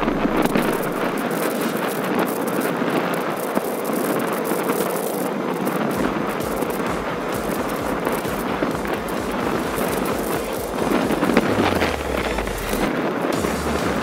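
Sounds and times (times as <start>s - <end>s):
low wind buffeting: 0.0s - 14.0s
wind rushing over microphone: 0.0s - 14.0s.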